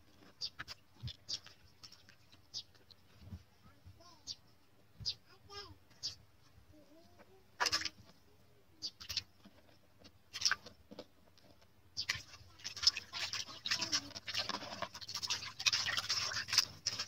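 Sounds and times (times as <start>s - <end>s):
hands rubbing fish in metal basin: 12.0s - 17.0s.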